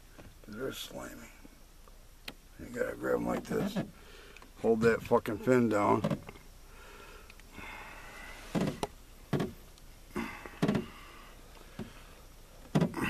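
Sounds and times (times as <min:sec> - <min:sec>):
faint handling noise: 0:00.0 - 0:06.5, 0:08.4 - 0:13.0
short dull knocks: 0:10.6 - 0:11.0, 0:12.7 - 0:13.0.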